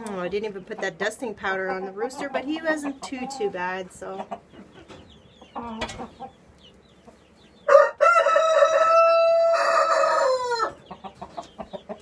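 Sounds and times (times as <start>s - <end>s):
rooster crowing: 7.7s - 10.8s.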